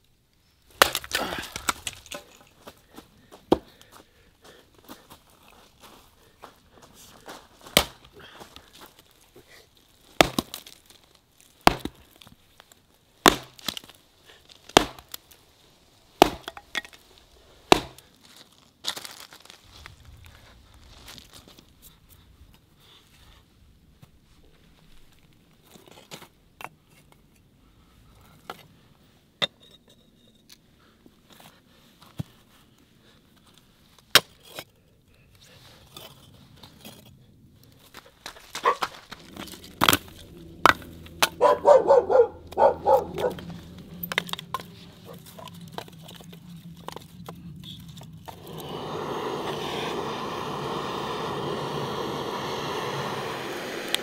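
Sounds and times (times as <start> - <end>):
steady rushing noise: 38.3 - 54.0.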